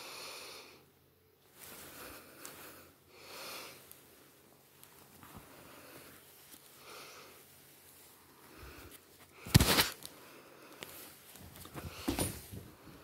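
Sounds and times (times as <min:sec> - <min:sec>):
fabric rustling and bumping: 0:09.4 - 0:10.1, 0:11.2 - 0:13.0.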